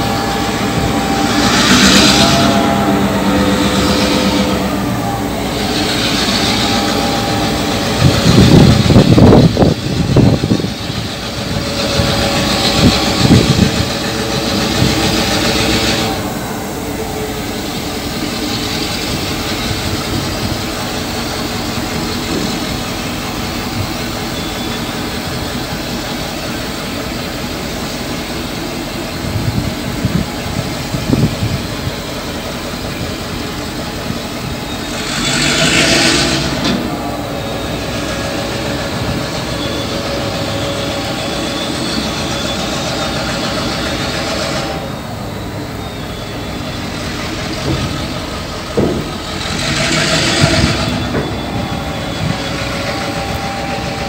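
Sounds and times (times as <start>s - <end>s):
diesel locomotive drone: 0.0s - 54.0s
train wagons clanking: 0.0s - 54.0s.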